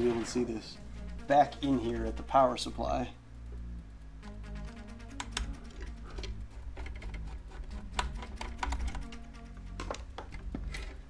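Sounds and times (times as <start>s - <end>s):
background music with bass: 0.0s - 11.0s
screwdriver clicking on metal chassis: 5.2s - 11.0s.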